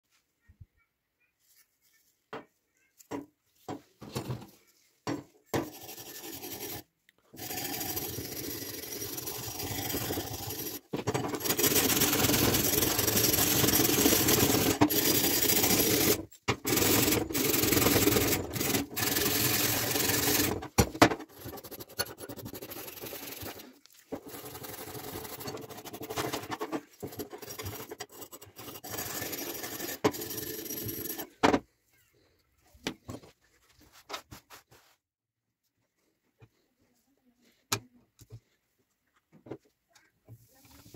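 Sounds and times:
wire brush scrubbing metal: 5.6s - 31.4s.

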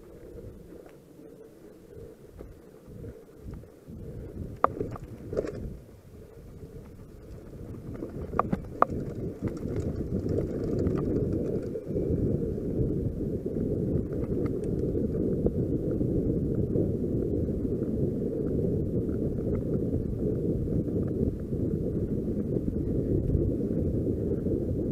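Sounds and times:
wind buffeting microphone: 0.0s - 24.9s
bike rattling over bumps: 4.2s - 12.8s.

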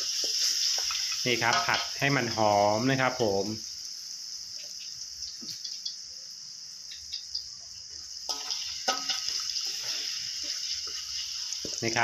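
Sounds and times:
paste sizzling in oil: 0.0s - 12.0s
metal spatula scraping pan: 8.3s - 11.8s.

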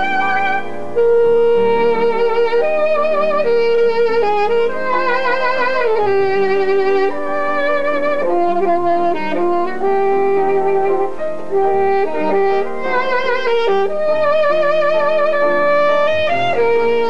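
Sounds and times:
saxophone slow melody: 0.0s - 17.0s.

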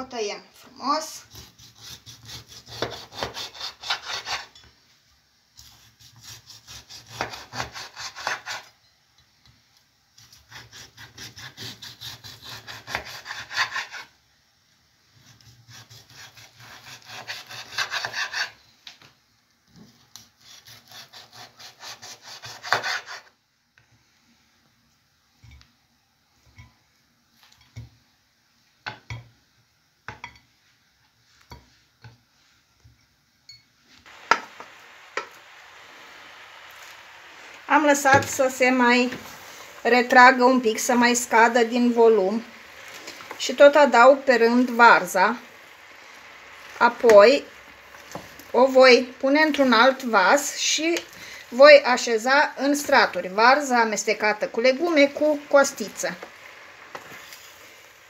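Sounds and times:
knife sawing through meat: 1.3s - 4.5s, 5.6s - 8.7s, 10.3s - 14.1s, 15.6s - 18.6s, 20.2s - 23.3s.

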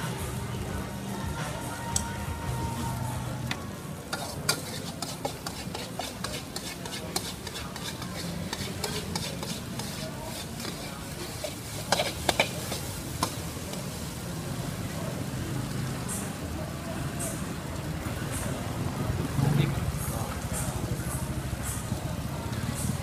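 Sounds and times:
food sizzling: 0.0s - 19.6s
metal spatula scraping a wok: 4.1s - 13.5s.

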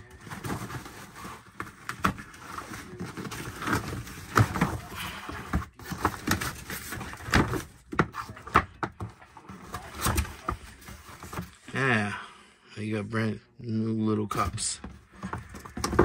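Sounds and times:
clutter clicking and rustling: 0.2s - 11.6s.

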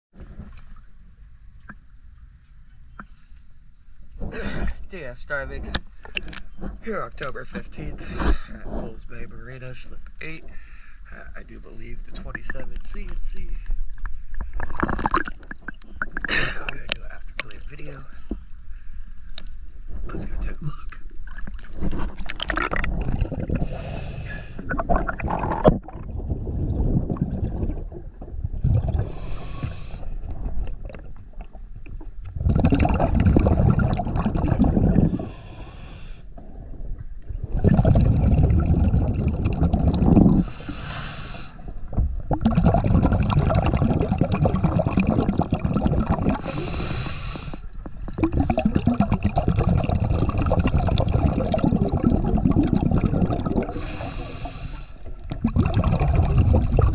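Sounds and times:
low bubbling of exhaled air: 4.1s - 9.2s, 10.2s - 18.8s, 19.9s - 56.9s
regulator inhale hiss: 23.6s - 24.7s, 29.0s - 30.2s, 35.0s - 36.3s, 40.4s - 41.8s, 46.4s - 47.8s, 53.7s - 55.1s.

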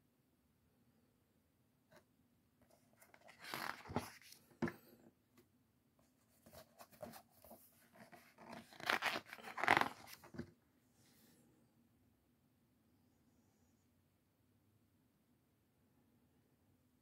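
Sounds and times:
book pages turning: 2.7s - 4.9s, 6.3s - 10.5s.

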